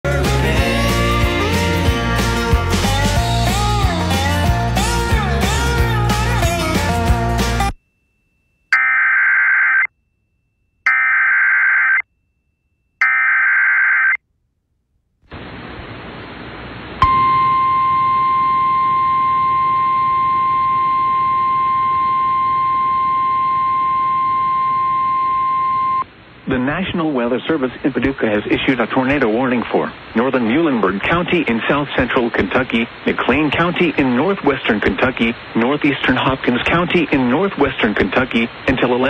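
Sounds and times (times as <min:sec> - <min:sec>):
high-pitched warning alarm tone: 0:08.7 - 0:09.9, 0:10.9 - 0:12.0
radio static hiss: 0:15.3 - 0:17.0, 0:26.0 - 0:39.0.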